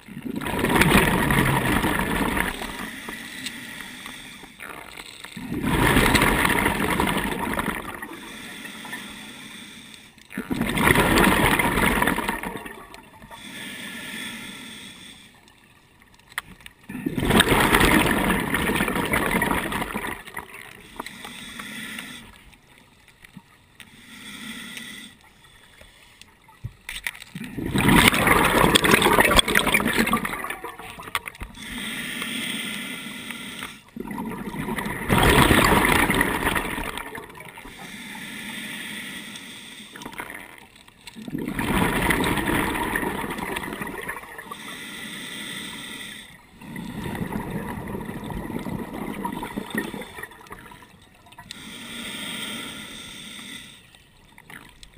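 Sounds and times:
diver exhaling bubbles underwater: 0:00.0 - 0:03.1, 0:04.1 - 0:08.4, 0:10.3 - 0:13.4, 0:16.8 - 0:20.9, 0:27.3 - 0:31.9, 0:33.9 - 0:37.7, 0:40.0 - 0:44.7, 0:46.6 - 0:51.4
hissing regulator breaths: 0:02.7 - 0:05.1, 0:08.1 - 0:10.3, 0:13.3 - 0:15.5, 0:20.7 - 0:22.6, 0:23.8 - 0:26.3, 0:31.4 - 0:34.0, 0:37.5 - 0:40.2, 0:44.5 - 0:47.2, 0:51.4 - 0:54.1.

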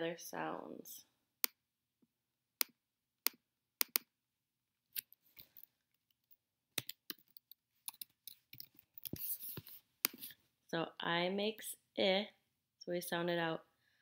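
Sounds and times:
mouse clicks: 0:03.3 - 0:04.1
keyboard typing: 0:06.8 - 0:10.2.

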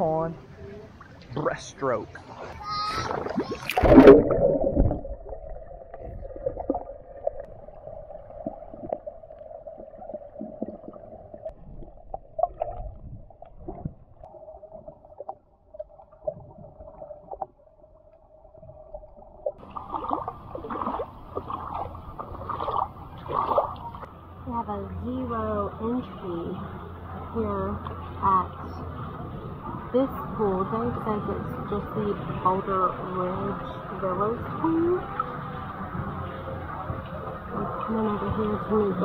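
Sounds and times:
water sloshing: 0:00.5 - 0:39.0
microphone splashing into water: 0:02.1 - 0:06.9, 0:19.6 - 0:24.1
muffled underwater hum: 0:02.2 - 0:39.0.

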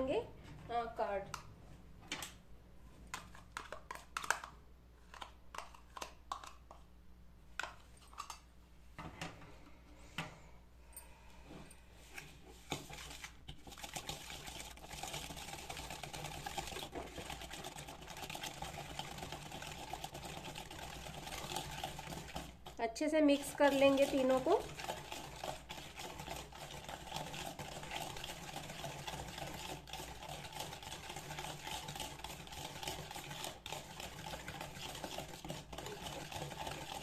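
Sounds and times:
whisk clicking in plastic bowl: 0:03.1 - 0:06.8, 0:12.7 - 0:37.0.

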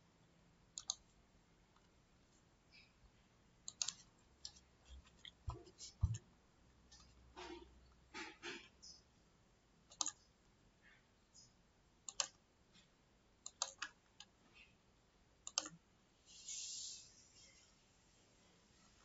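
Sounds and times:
mouse and keyboard clicks: 0:00.8 - 0:01.0, 0:03.7 - 0:06.2, 0:09.9 - 0:10.3, 0:11.4 - 0:14.7, 0:15.4 - 0:15.8
soft hiss: 0:16.2 - 0:19.0.

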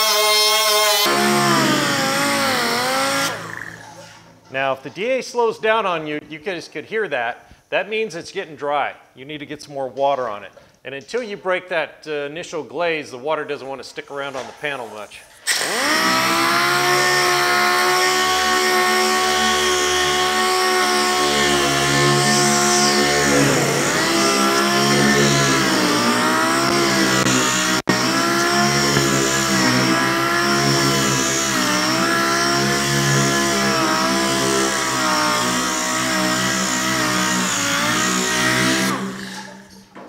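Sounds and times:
sander whining: 0:00.0 - 0:04.4, 0:15.5 - 0:39.8.

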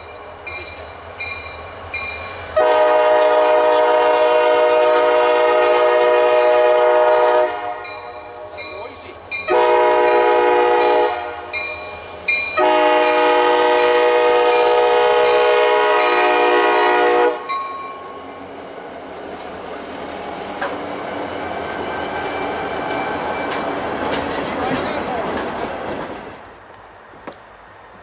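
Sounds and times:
locomotive air horn: 0:02.6 - 0:07.9, 0:09.5 - 0:11.5, 0:12.6 - 0:17.5
locomotives passing: 0:07.8 - 0:28.0.

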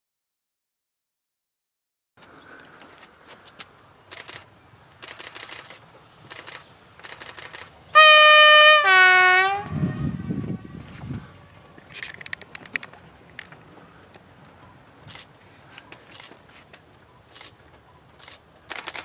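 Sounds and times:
two-tone train horn: 0:08.0 - 0:11.6.

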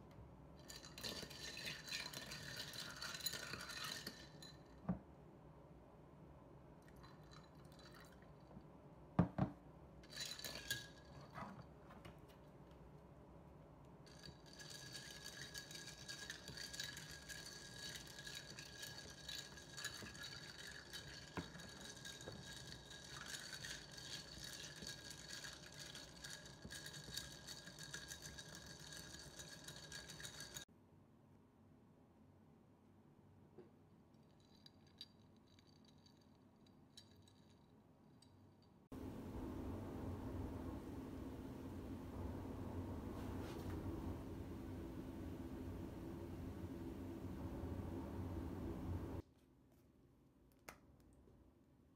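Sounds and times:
ice cubes clinking in a glass: 0:00.6 - 0:04.7, 0:10.1 - 0:11.3, 0:14.1 - 0:30.6.

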